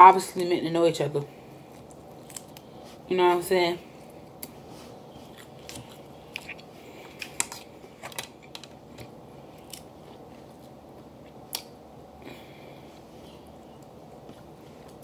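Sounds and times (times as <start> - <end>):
crab shells cracking: 1.8 - 2.7, 5.4 - 9.9
chewing: 5.1 - 11.4.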